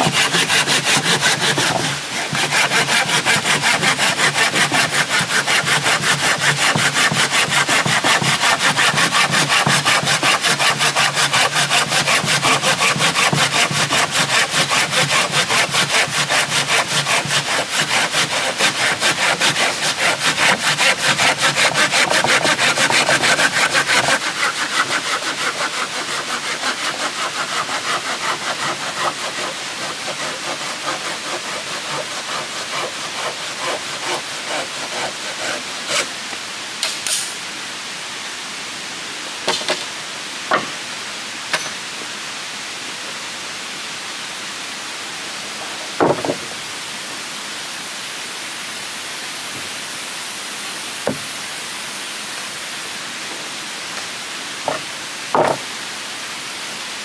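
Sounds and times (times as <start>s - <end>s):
hand saw cutting wood: 0.0s - 36.2s, 54.7s - 55.7s
steady high hiss: 0.0s - 57.0s
sharp knocks: 40.5s - 40.8s, 46.0s - 46.5s, 54.7s - 55.6s.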